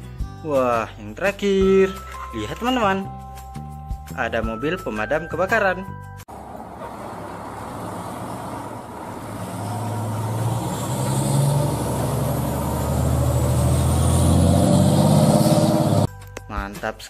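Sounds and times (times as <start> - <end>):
fire truck diesel engine pulling away: 6.3 - 16.1.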